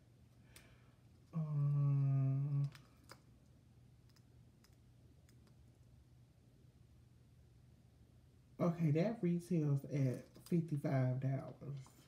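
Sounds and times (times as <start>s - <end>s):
woman humming: 1.4s - 2.8s.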